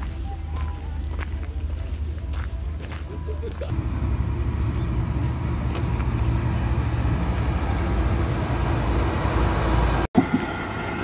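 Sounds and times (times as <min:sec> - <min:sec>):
vehicle engine droning: 0:03.7 - 0:11.0.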